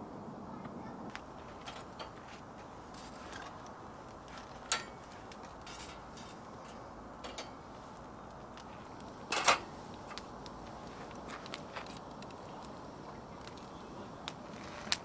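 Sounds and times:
faint steady hiss: 0.0s - 15.0s
charcoal crackling and popping: 1.0s - 15.0s.

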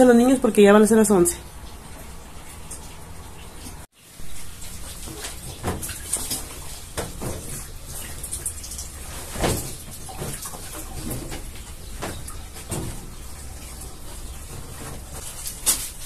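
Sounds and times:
washing machine hum: 0.0s - 16.0s
cloth rustling: 4.7s - 16.0s.

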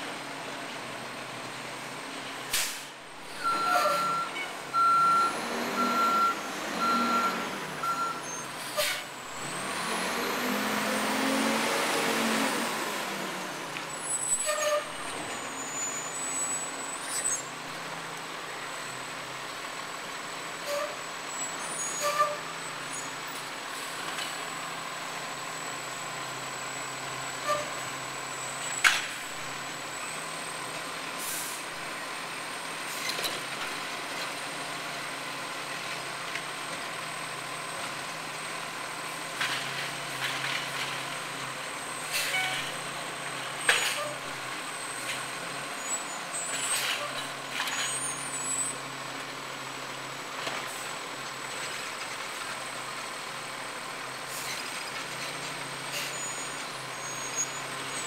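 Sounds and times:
reversing alarm beeping: 3.4s - 8.5s
truck engine revving: 3.4s - 14.2s.

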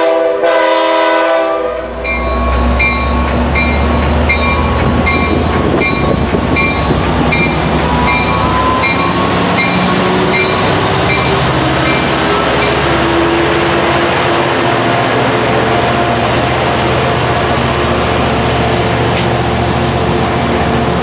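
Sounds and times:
locomotive horn chord: 0.0s - 2.0s
train engine rumble: 0.0s - 21.0s
locomotive bell ringing: 1.9s - 13.6s.

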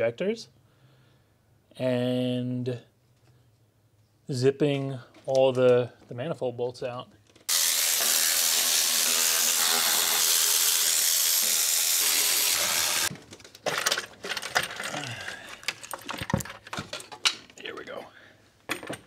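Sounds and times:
electric ratchet running: 7.5s - 13.1s
metallic clicks and knocks: 15.6s - 17.6s.

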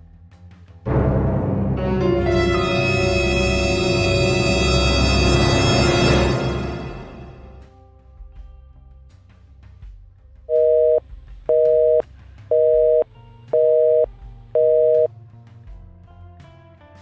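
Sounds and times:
eerie background music: 0.9s - 7.7s
two-tone busy signal beeps: 10.5s - 13.0s, 13.6s - 15.1s.

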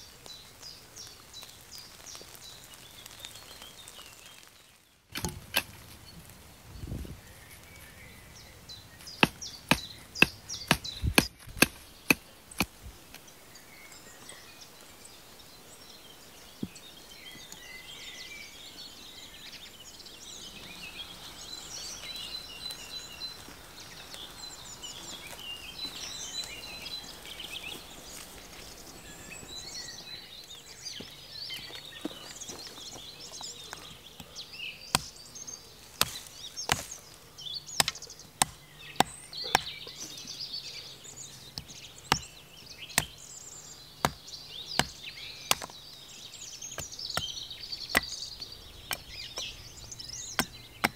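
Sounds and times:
birds chirping and singing: 0.0s - 50.9s
blade chopping stick on stump: 5.1s - 5.8s.

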